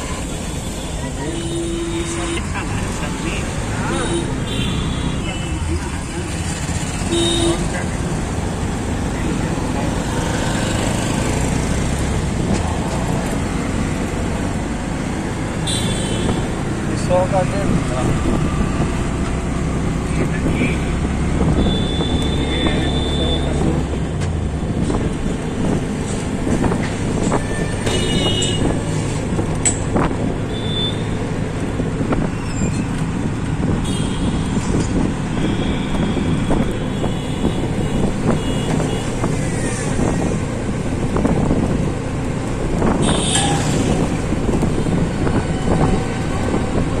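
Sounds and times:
auto-rickshaw engine running: 0.0 - 47.0
city traffic noise: 0.0 - 47.0
vehicle horns honking: 0.9 - 2.5, 3.8 - 5.7, 7.0 - 7.8, 15.6 - 16.5, 21.6 - 23.6, 27.8 - 28.8, 30.5 - 31.1, 33.8 - 34.6, 35.3 - 39.2, 43.0 - 44.0.

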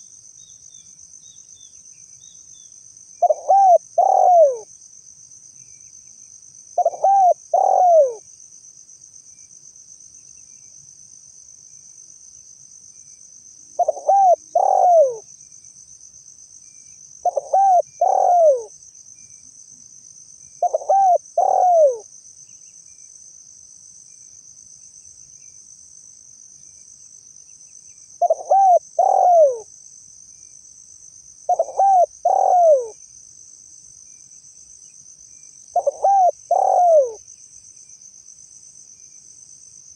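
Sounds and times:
high-pitched insect trill: 0.0 - 39.9
dove cooing: 3.2 - 4.7, 6.8 - 8.2, 13.8 - 15.2, 17.2 - 18.7, 20.6 - 22.0, 28.2 - 29.7, 31.5 - 33.0, 35.8 - 37.2.

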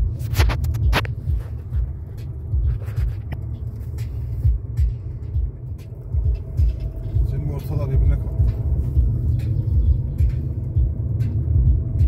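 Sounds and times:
car driving rumble: 0.0 - 12.0.

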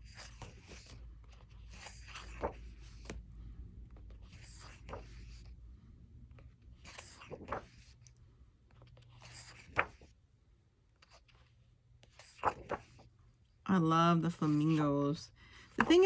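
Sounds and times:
paper pages turning: 0.0 - 5.5, 6.3 - 10.2, 10.9 - 13.1, 14.3 - 14.9.

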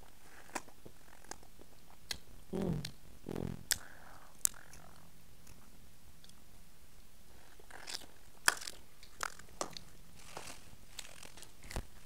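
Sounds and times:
short low hums: 2.5 - 3.7
lip smacks and sucking clicks: 2.8 - 5.6.

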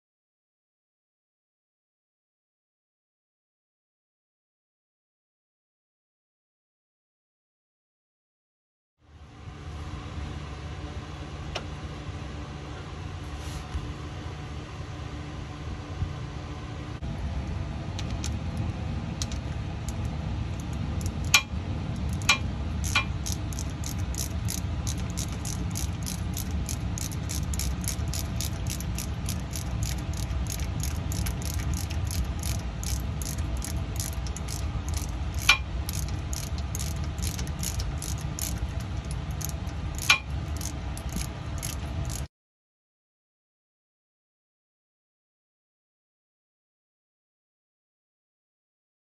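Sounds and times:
steady low rumble: 13.1 - 42.3
ratchet wrench clicking: 20.6 - 42.3.

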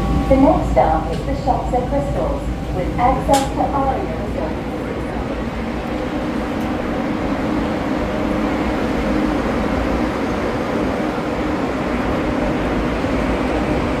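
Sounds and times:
tram rumbling with low hum: 0.0 - 14.0.

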